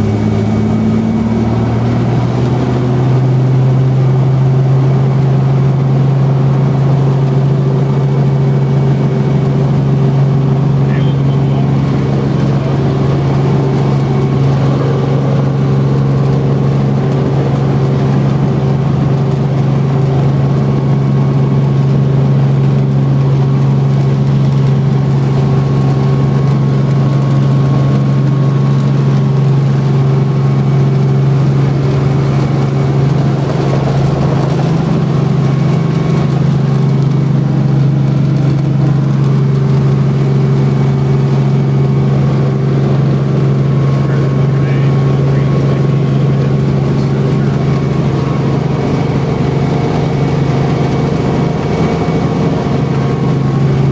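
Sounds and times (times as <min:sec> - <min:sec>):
helicopter engine and rotors: 0:00.0 - 0:53.9.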